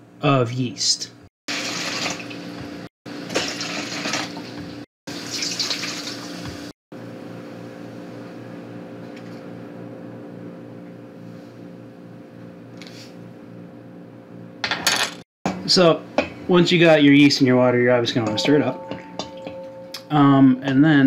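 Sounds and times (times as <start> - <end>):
water pouring into metal pot: 1.5 - 2.3, 5.1 - 6.3
steady low hum: 7.0 - 14.6.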